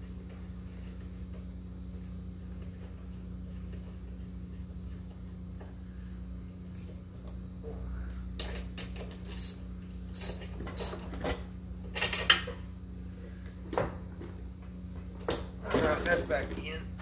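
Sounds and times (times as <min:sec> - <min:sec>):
steady low hum: 0:00.0 - 0:17.0
metal tools clinking on engine: 0:08.4 - 0:12.5.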